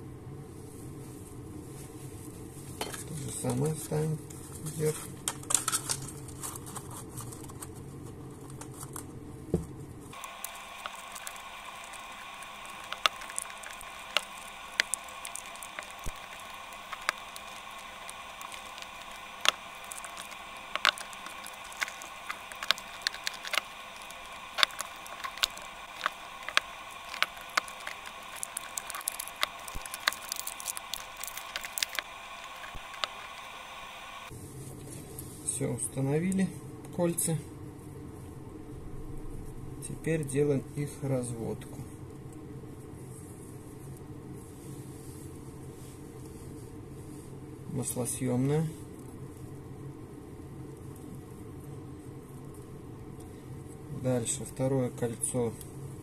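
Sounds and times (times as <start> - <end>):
faint steady hum: 0.0 - 56.0
plastic crinkling: 4.3 - 9.1, 10.1 - 35.3
small clicks: 10.2 - 34.3.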